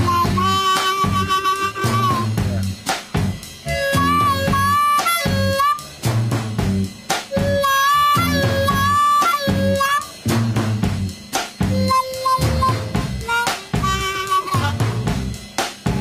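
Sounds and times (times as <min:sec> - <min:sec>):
blues harmonica solo: 0:00.0 - 0:02.8, 0:03.6 - 0:16.0
drum kit: 0:00.0 - 0:16.0
electric bass: 0:00.0 - 0:16.0.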